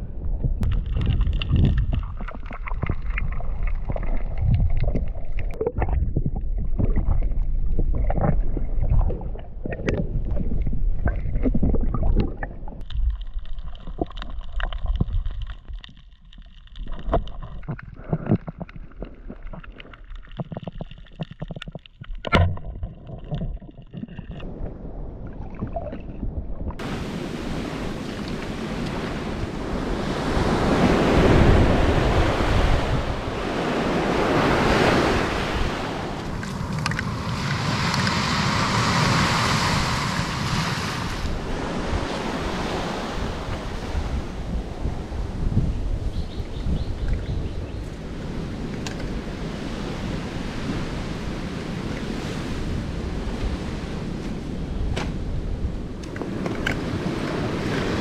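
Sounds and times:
wind on microphone: 0:00.0 - 0:13.2, 0:23.4 - 0:58.0
underwater water rumble: 0:00.0 - 0:53.6
underwater clicks: 0:00.6 - 0:24.5, 0:36.2 - 0:37.1, 0:56.0 - 0:57.4
surf breaking on beach: 0:26.8 - 0:45.6, 0:56.2 - 0:58.0.

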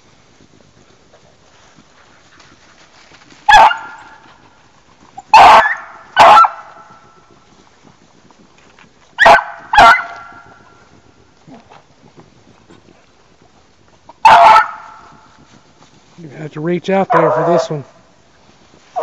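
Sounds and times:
dog baying: 0:03.5 - 0:04.2, 0:05.2 - 0:06.8, 0:09.2 - 0:10.5, 0:14.2 - 0:15.1, 0:17.1 - 0:17.7.

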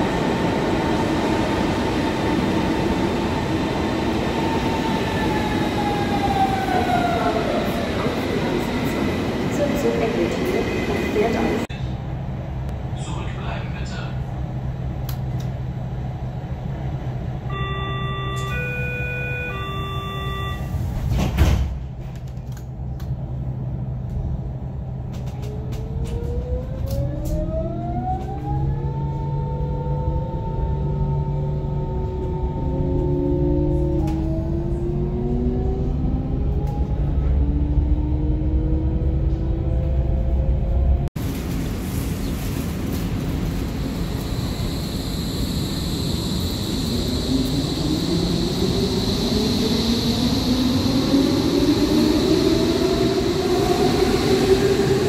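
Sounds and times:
platform noise: 0:17.5 - 0:20.8
door-closing warning tone: 0:17.5 - 0:21.1
sliding doors shutting thump: 0:21.0 - 0:21.8.

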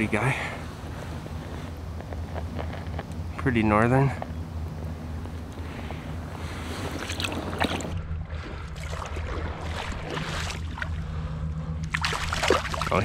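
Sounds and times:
steady low hum: 0:00.0 - 0:13.0
water splashing and sloshing: 0:06.4 - 0:13.0.

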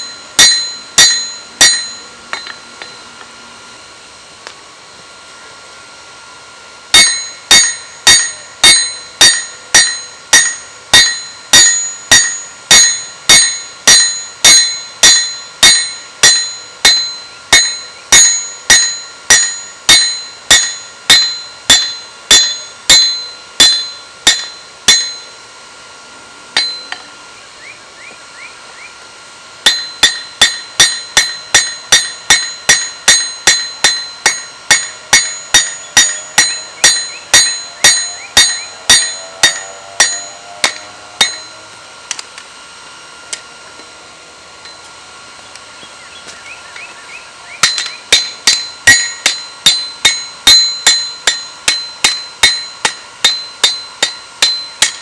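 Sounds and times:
hammer ringing on anvil: 0:00.0 - 0:03.1, 0:06.9 - 0:25.5, 0:26.6 - 0:27.1, 0:29.6 - 0:41.7, 0:47.6 - 0:55.0.

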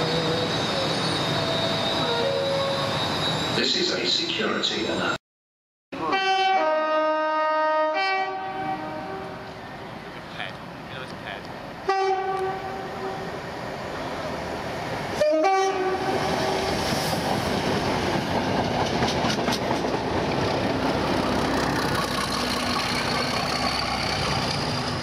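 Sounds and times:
train horn blasts: 0:06.0 - 0:09.5, 0:11.9 - 0:13.3, 0:15.2 - 0:16.7
train rushing rumble: 0:08.6 - 0:25.0
wheels clicking over rail joints: 0:18.2 - 0:20.6.

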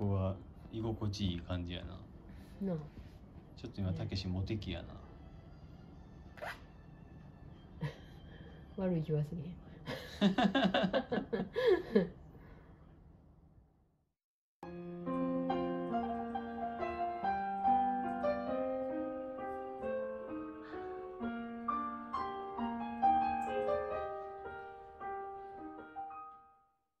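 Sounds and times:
gentle piano music: 0:14.6 - 0:26.8.

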